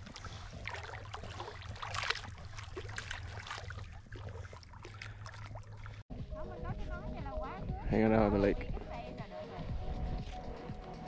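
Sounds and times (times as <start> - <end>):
dog splashing in water: 0.0 - 6.0.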